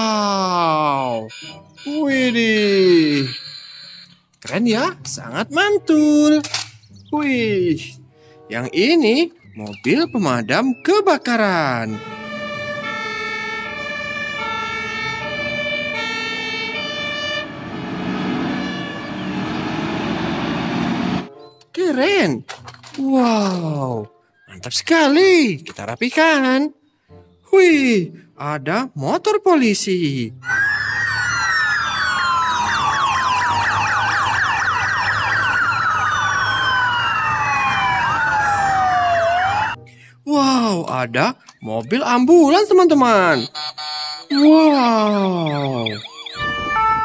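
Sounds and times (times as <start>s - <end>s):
police sirens yelping and wailing: 0.0s - 4.1s, 10.8s - 21.3s, 30.4s - 39.8s, 41.4s - 47.0s
truck engine pulling away: 12.0s - 21.3s
fire engine two-tone horn: 15.8s - 21.3s, 46.4s - 47.0s.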